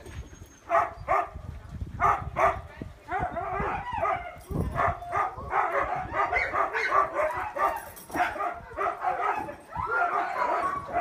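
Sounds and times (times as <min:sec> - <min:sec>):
dogs barking and yipping: 0:00.0 - 0:11.0.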